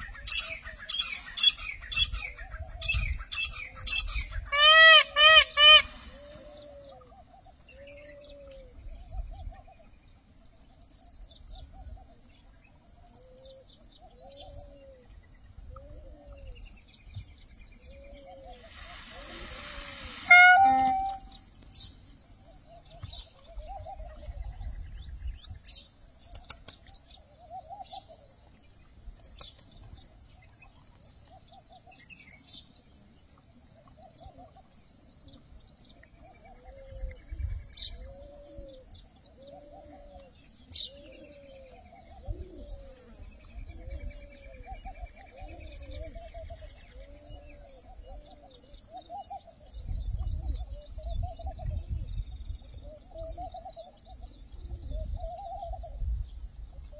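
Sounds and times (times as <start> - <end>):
small birds chirping: 5.5 - 56.9
pigeons cooing: 38.0 - 48.6.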